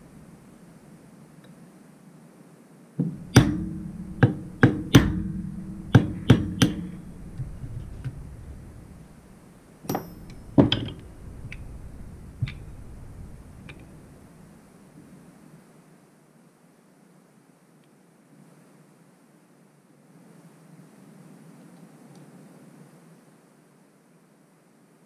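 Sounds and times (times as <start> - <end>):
hammer tapping metal punch: 3.0 - 8.9, 9.9 - 13.1.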